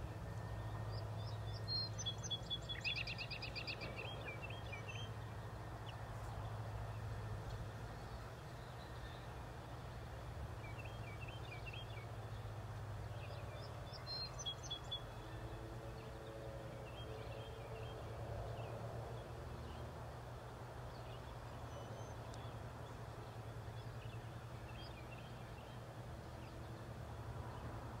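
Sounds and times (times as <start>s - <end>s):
steady low hum: 0.0s - 28.0s
small birds chirping: 0.9s - 5.2s.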